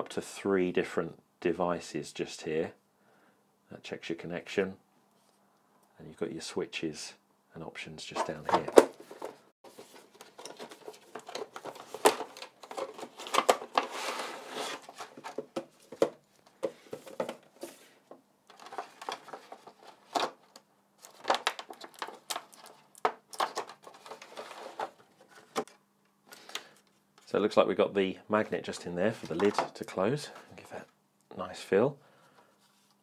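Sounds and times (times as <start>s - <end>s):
plastic packaging crinkling: 9.7s - 15.5s, 21.0s - 25.0s.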